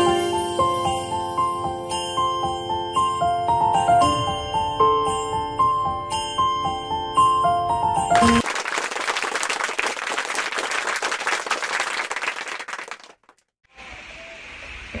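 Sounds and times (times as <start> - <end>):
crowd applause: 8.2 - 13.4.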